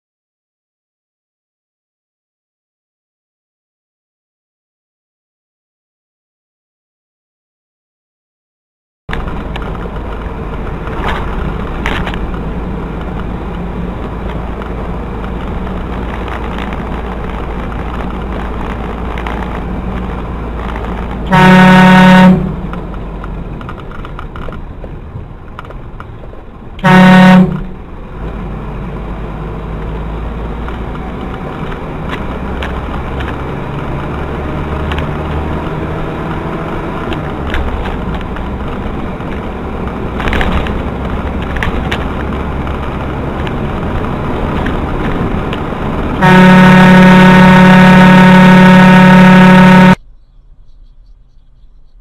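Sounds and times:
road and engine noise: 9.1s - 52.0s
vehicle horn blasts: 21.3s - 22.6s, 26.8s - 27.8s, 46.2s - 50.0s.

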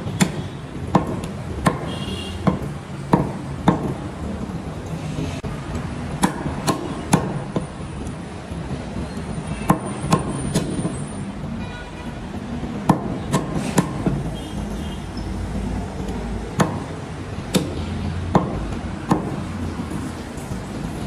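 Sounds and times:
cleaver chopping meat on wood: 0.2s - 4.0s, 6.1s - 7.6s, 9.7s - 10.8s, 12.8s - 14.2s, 16.5s - 19.5s.

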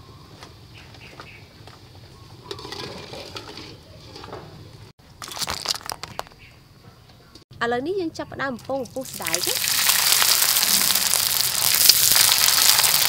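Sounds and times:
eggs and water splashing into basket: 8.8s - 13.0s.

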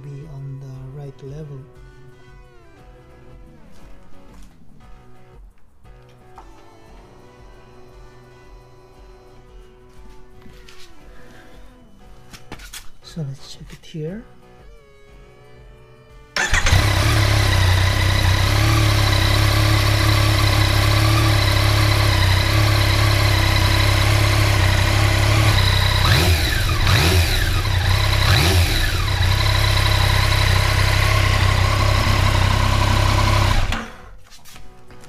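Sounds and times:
engine throttle revs: 16.4s - 34.1s
motorcycle engine idling: 16.4s - 34.1s.

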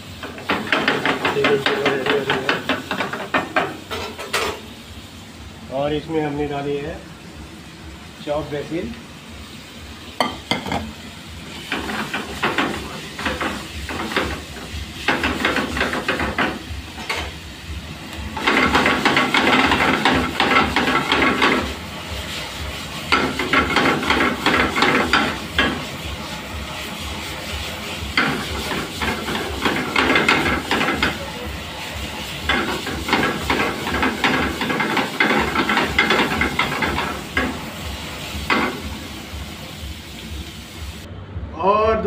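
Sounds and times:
vegetables sizzling in a wok: 0.0s - 41.1s
utensil scraping and rattling in pan: 0.2s - 4.7s, 11.5s - 17.2s, 18.4s - 38.9s.

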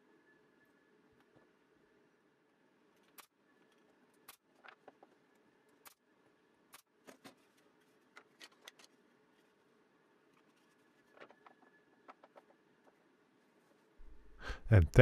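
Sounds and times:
wooden pieces clicking and tapping: 11.1s - 13.0s.

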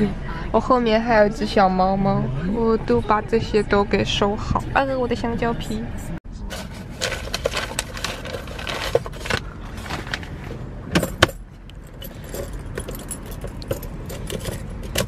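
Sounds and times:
papers rustling: 6.5s - 10.7s
key ring jangling: 11.0s - 15.0s.

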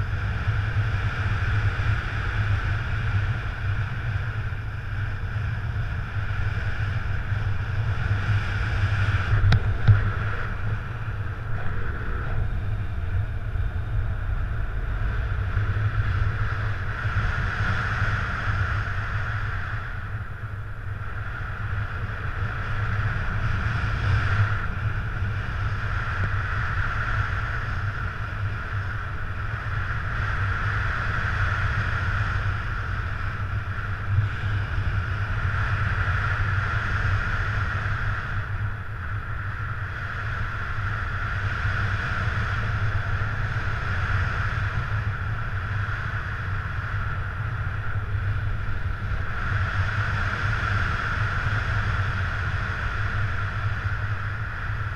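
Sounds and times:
low rumble: 0.0s - 30.6s
wind rushing over microphone: 0.0s - 54.9s.

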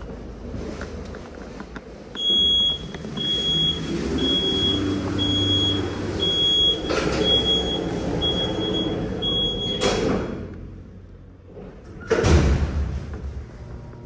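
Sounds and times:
low hum of doors closing: 0.0s - 14.0s
elevator warning beeps: 2.2s - 10.0s
elevator doors clunk: 2.2s - 10.8s.

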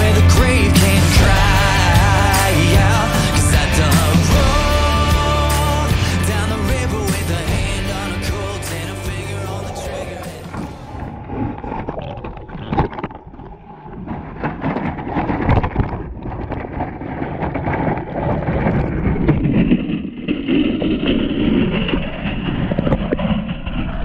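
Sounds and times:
muffled water rushing: 7.4s - 24.0s.

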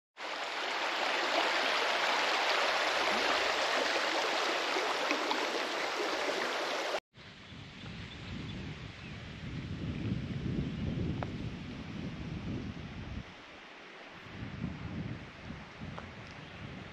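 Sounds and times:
stream water rushing: 0.2s - 7.0s.

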